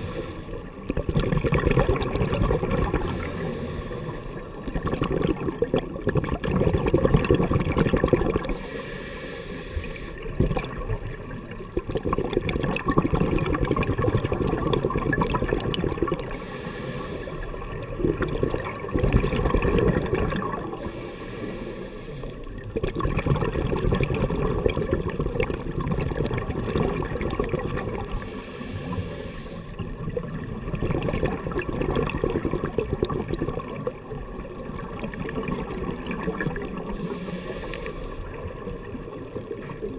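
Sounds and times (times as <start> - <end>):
hissing regulator inhalations: 0.0 - 0.8, 3.0 - 4.7, 8.5 - 11.4, 16.3 - 18.5, 20.8 - 22.6, 28.1 - 29.9, 36.9 - 38.5
bubbling underwater exhalations: 0.8 - 3.5, 4.6 - 8.6, 10.3 - 10.9, 11.6 - 16.5, 17.4 - 21.0, 22.5 - 29.0, 29.8 - 37.2.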